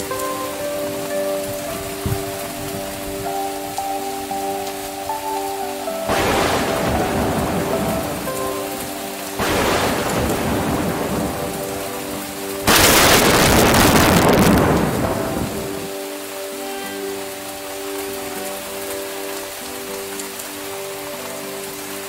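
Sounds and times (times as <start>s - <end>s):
heavy rain: 0.0s - 22.0s
thunder claps: 6.1s - 11.9s, 12.6s - 15.9s.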